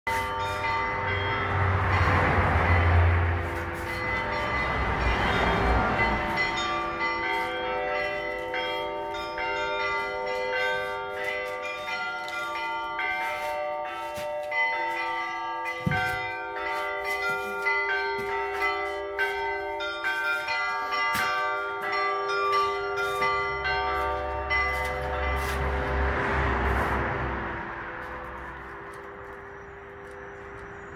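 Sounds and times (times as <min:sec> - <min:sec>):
church bells ringing: 0:00.1 - 0:30.9.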